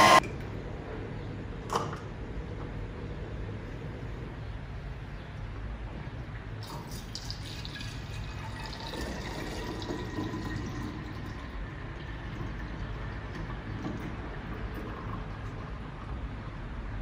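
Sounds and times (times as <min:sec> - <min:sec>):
steady low hum: 0:00.0 - 0:17.0
juice pouring into glass bottle: 0:06.6 - 0:15.8.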